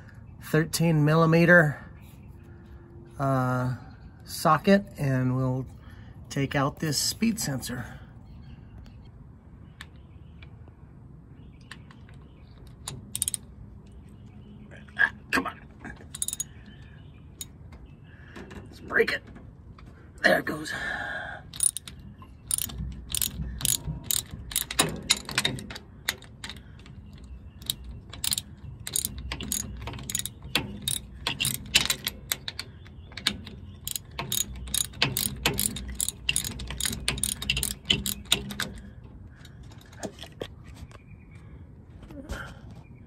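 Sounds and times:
socket wrench ratchet clicking: 0:12.8 - 0:13.5, 0:16.1 - 0:16.5, 0:21.5 - 0:32.6, 0:33.2 - 0:38.8.

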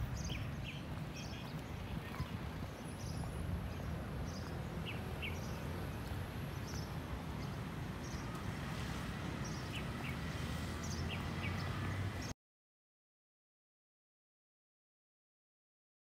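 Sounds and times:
low city rumble: 0:00.0 - 0:12.3
small birds chirping: 0:00.0 - 0:12.3.

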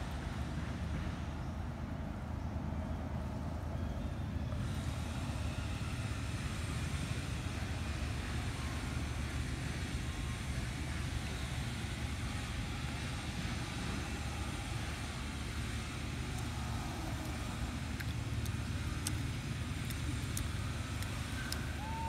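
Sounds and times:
low outdoor rumble: 0:00.0 - 0:22.0
faint clicks: 0:17.1 - 0:21.9.

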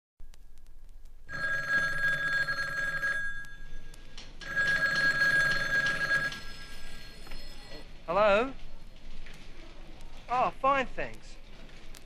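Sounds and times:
telephone bell ringing: 0:01.3 - 0:07.8.

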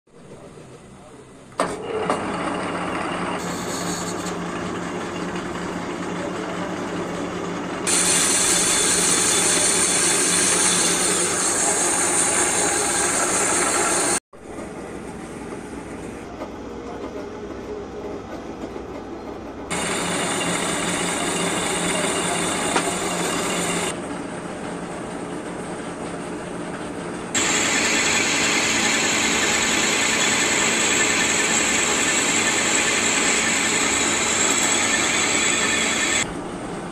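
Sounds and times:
metal lathe humming: 0:02.2 - 0:14.2, 0:19.7 - 0:24.0, 0:27.3 - 0:36.3
cutting tool hissing on steel: 0:07.9 - 0:14.2, 0:27.4 - 0:36.2.

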